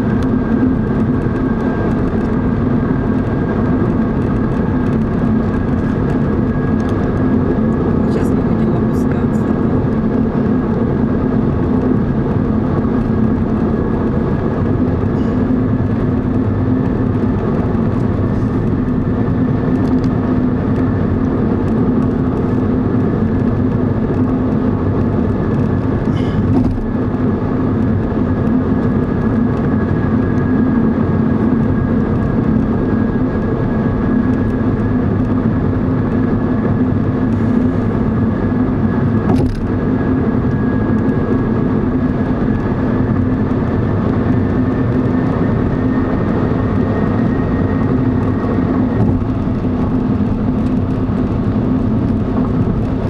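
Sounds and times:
car engine hum: 0:00.0 - 0:53.0.

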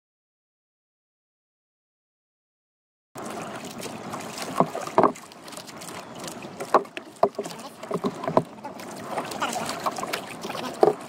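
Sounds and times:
wind and water wash: 0:03.2 - 0:11.0
sharp knocks against boat: 0:03.8 - 0:05.3, 0:06.2 - 0:11.0.

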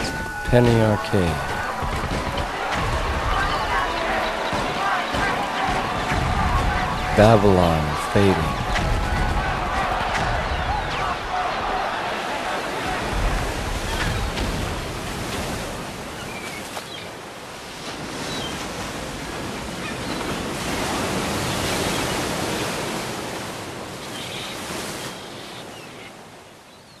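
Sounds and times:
dense wash of noise: 0:00.0 - 0:14.3.

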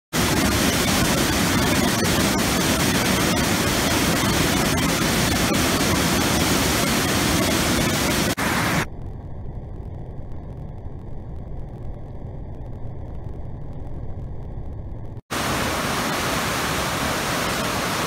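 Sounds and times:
rush of rapids: 0:15.3 - 0:18.0
waterfall pouring over rocks: 0:15.3 - 0:18.0.

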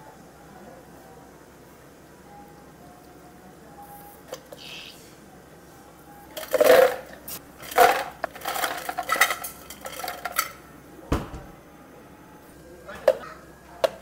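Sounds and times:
ice cubes crashing into a blender jar: 0:06.4 - 0:10.5
dull thump: 0:11.1 - 0:11.5.

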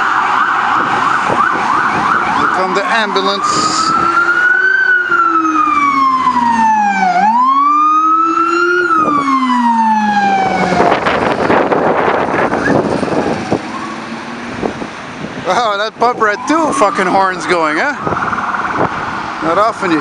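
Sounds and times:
ambulance siren wailing: 0:00.0 - 0:20.0
loud rough rushing noise: 0:10.1 - 0:15.6.

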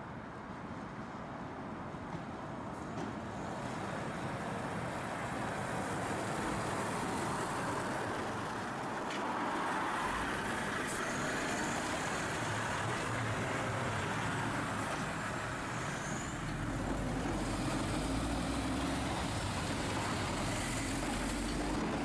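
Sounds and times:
truck diesel engine passing: 0:05.8 - 0:22.0.

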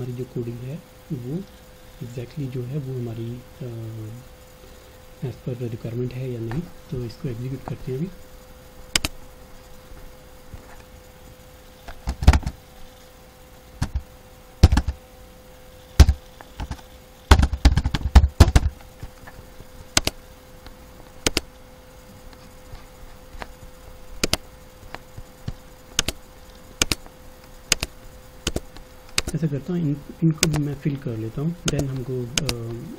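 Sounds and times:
faint steady hum: 0:00.0 - 0:32.9
mouse clicks: 0:08.9 - 0:09.2, 0:19.9 - 0:20.2, 0:21.2 - 0:21.5, 0:24.2 - 0:25.0, 0:26.0 - 0:26.2, 0:26.8 - 0:27.1, 0:27.7 - 0:29.4, 0:30.4 - 0:30.7
keyboard key taps: 0:14.6 - 0:15.0.

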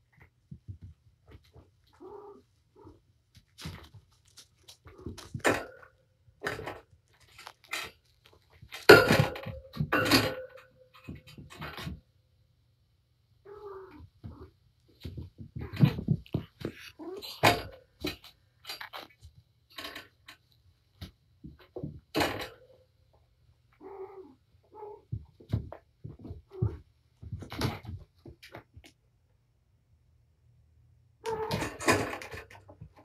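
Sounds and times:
cats scratching and scuffling: 0:00.0 - 0:08.9, 0:14.2 - 0:22.5, 0:25.0 - 0:29.0.

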